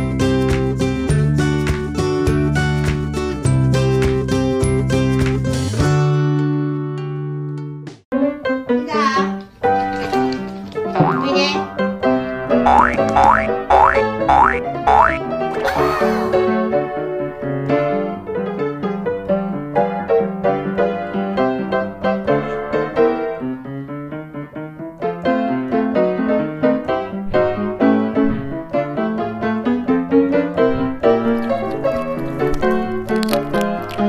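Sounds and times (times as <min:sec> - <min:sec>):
piano music: 0:10.9 - 0:11.7, 0:12.6 - 0:16.5.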